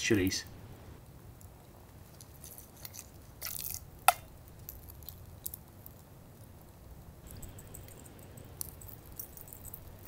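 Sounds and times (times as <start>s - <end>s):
spice container rattling: 2.1s - 5.6s, 7.3s - 10.0s.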